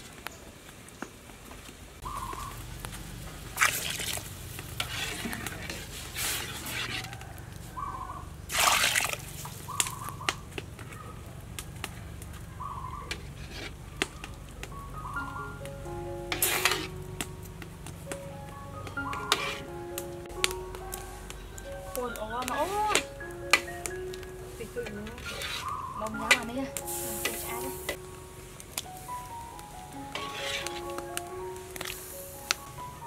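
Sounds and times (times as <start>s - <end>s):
water boiling and bubbling: 0.0s - 33.0s
splashy bursts: 3.4s - 6.8s, 8.4s - 10.0s.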